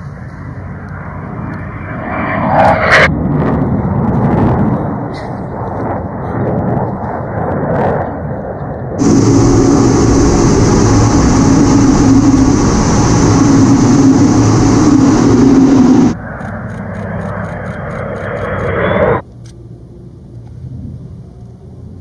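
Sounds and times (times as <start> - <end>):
jet aircraft flying past: 0.0 - 4.1, 9.0 - 19.2
jet engines in cockpit: 0.0 - 20.6
rushing air: 9.0 - 16.4.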